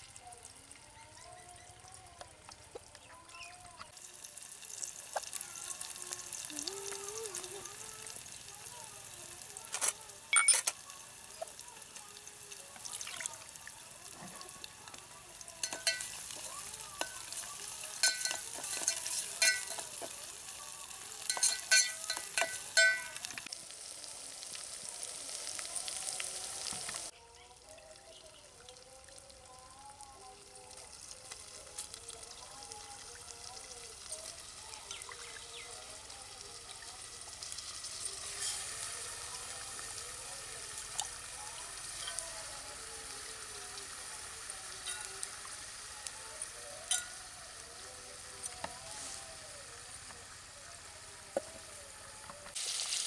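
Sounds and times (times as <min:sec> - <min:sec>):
utensils clinking on steel pots: 0:09.8 - 0:10.8, 0:15.5 - 0:20.2, 0:21.2 - 0:23.5, 0:38.2 - 0:38.8, 0:44.8 - 0:45.2, 0:46.9 - 0:47.2.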